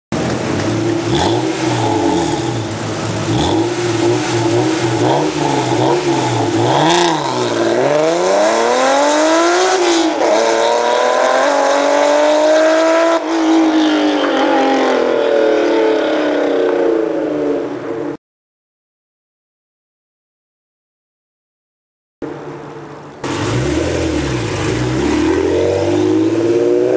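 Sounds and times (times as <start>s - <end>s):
car engine revving: 0.2s - 16.5s, 23.2s - 26.9s
car accelerating hard: 0.4s - 16.3s, 23.2s - 26.9s.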